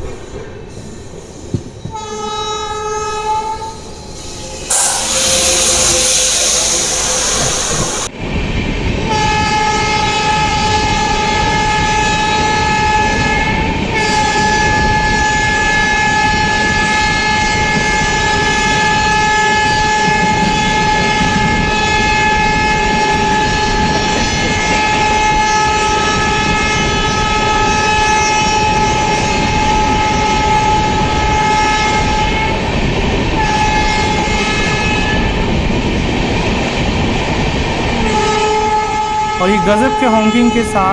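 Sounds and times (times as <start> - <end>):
train wheels rumbling and clattering: 0.0 - 40.9
multi-tone train horn: 1.9 - 8.1, 9.1 - 32.6, 33.4 - 35.3, 38.0 - 40.9
locomotive rushing past: 2.6 - 9.0.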